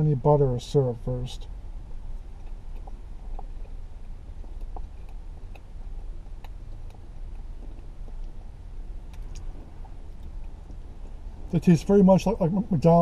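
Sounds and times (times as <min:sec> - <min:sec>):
low rumble in car cabin: 0:00.0 - 0:13.0
man chewing: 0:01.9 - 0:11.5.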